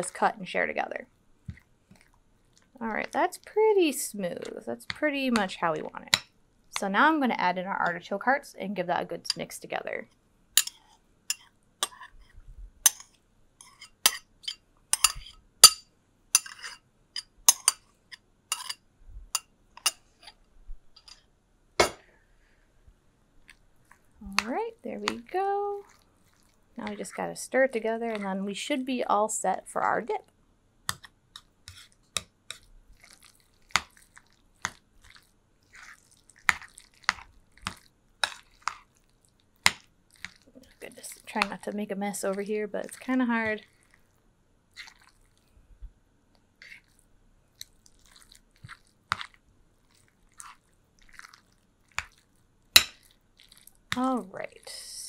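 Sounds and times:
soft squishing of dip: 0:01.4 - 0:03.6, 0:10.0 - 0:15.4, 0:23.2 - 0:28.6, 0:30.9 - 0:54.7
fork clinking against glass bowl: 0:10.6 - 0:12.0, 0:15.0 - 0:15.8, 0:16.4 - 0:17.8, 0:18.5 - 0:18.8
utensil clinking against metal bowl: 0:16.4 - 0:17.8.

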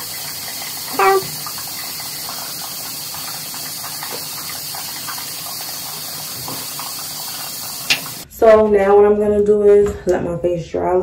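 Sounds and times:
tap water running into sink: 0:00.0 - 0:08.2.

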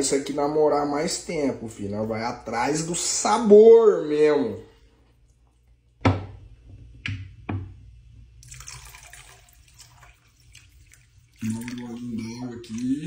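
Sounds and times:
water pouring into pot: 0:08.4 - 0:13.0.

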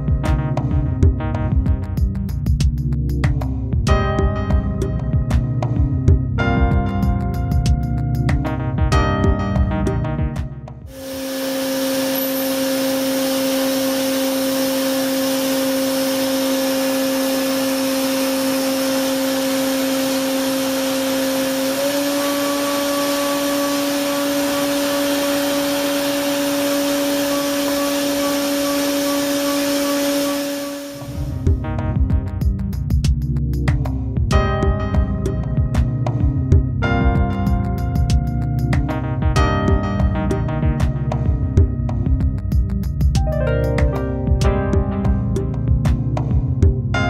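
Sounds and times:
milling machine cutting steel: 0:10.9 - 0:31.3.

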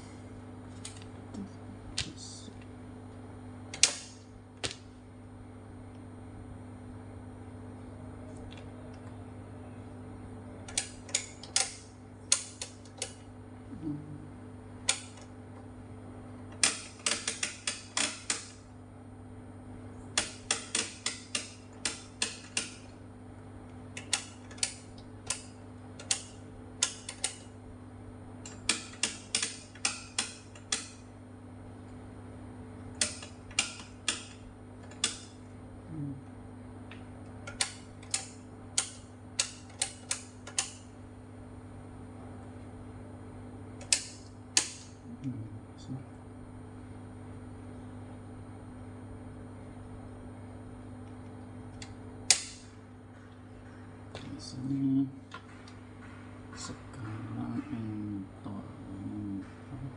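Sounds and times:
steady low hum: 0:00.0 - 0:59.9
rotary knobs clicking: 0:00.7 - 0:01.1, 0:03.7 - 0:04.9, 0:10.6 - 0:13.3, 0:14.8 - 0:15.7, 0:16.4 - 0:18.7, 0:20.0 - 0:23.0, 0:23.6 - 0:27.6, 0:28.3 - 0:31.1, 0:32.8 - 0:35.5, 0:36.9 - 0:41.0, 0:43.8 - 0:45.1, 0:51.0 - 0:57.8.

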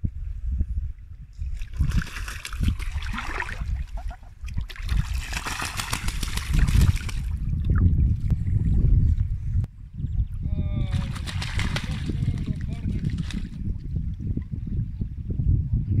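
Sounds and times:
wind buffeting: 0:00.0 - 0:16.0
water splashing: 0:01.5 - 0:07.9.

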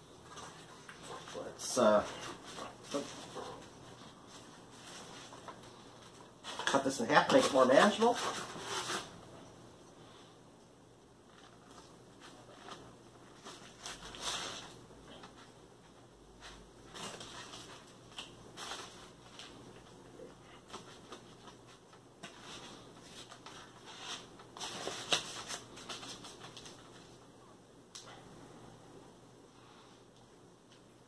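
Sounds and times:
paper and foil wrapper rustling: 0:00.2 - 0:09.1, 0:11.3 - 0:15.5, 0:16.3 - 0:27.2.

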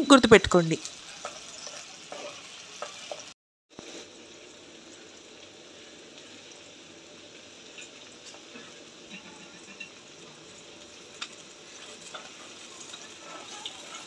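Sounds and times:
food sizzling in hot oil: 0:00.0 - 0:14.0
wooden spatula scraping: 0:01.1 - 0:03.3, 0:11.7 - 0:14.0.

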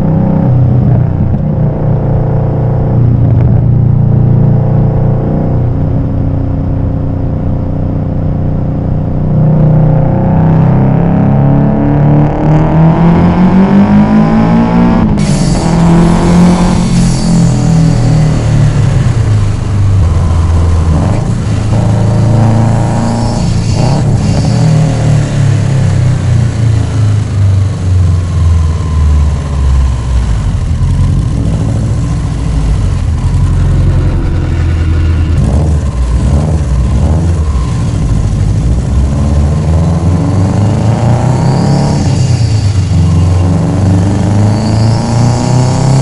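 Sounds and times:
car engine and exhaust accelerating: 0:00.0 - 0:46.0.

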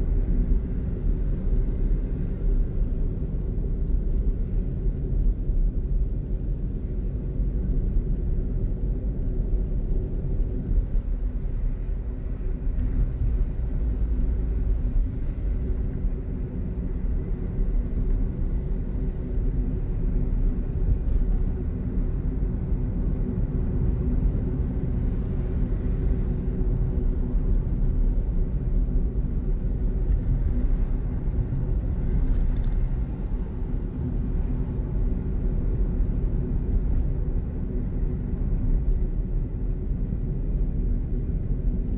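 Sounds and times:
car engine and road noise: 0:00.0 - 0:41.9.

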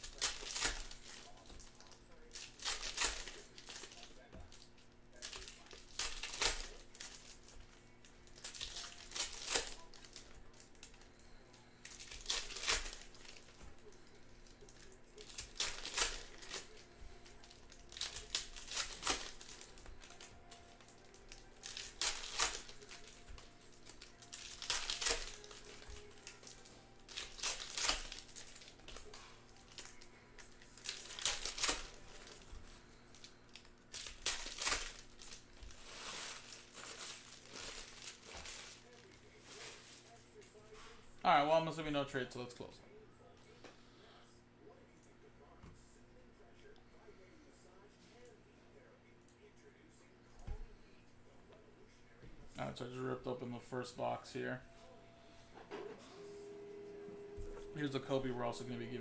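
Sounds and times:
plastic wrappers crinkling and tearing: 0:00.0 - 0:40.8.

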